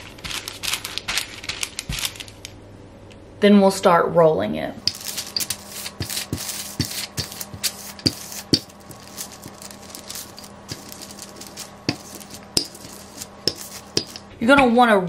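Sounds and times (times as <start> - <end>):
rolling pin rubbing on paper: 4.9 - 14.2.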